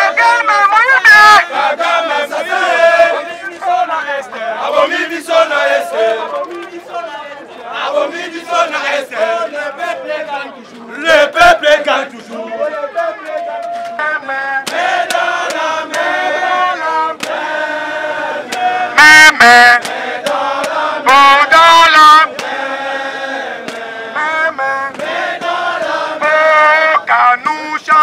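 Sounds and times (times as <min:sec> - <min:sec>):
voice through a megaphone: 0:00.0 - 0:14.6, 0:18.8 - 0:19.9, 0:21.0 - 0:22.3, 0:26.2 - 0:28.0
group singing a chant: 0:01.4 - 0:12.8, 0:13.6 - 0:27.1.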